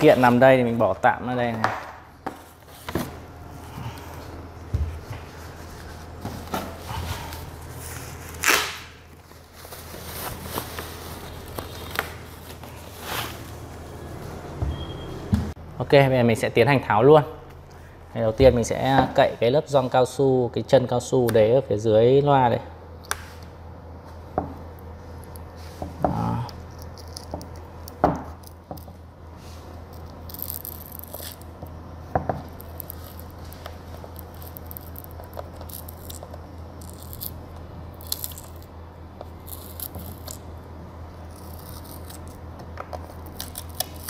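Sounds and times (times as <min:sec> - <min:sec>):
steady low hum: 0:00.0 - 0:44.0
rubber tearing: 0:08.3 - 0:09.0.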